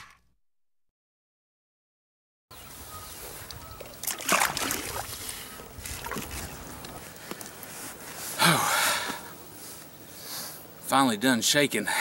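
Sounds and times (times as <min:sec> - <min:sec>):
water splashing and sloshing: 0:03.8 - 0:07.0.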